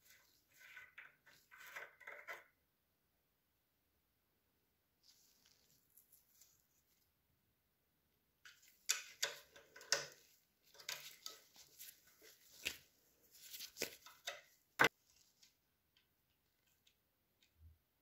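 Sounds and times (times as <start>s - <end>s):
metal fittings clicking and scraping: 8.5s - 12.8s.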